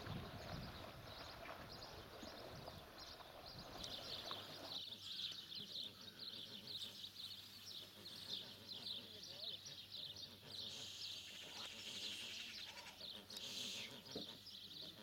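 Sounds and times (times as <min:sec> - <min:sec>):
goslings peeping: 0:04.1 - 0:15.0.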